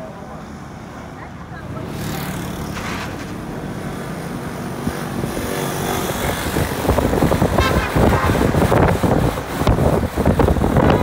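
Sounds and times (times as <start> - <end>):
wind buffeting on microphone: 4.8 - 11.0.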